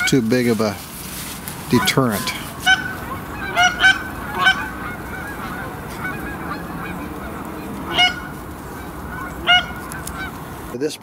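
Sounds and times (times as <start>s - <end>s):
geese honking in flight: 0.0s - 0.6s, 1.2s - 10.8s
loud single goose honk: 1.7s - 8.4s, 9.1s - 10.3s.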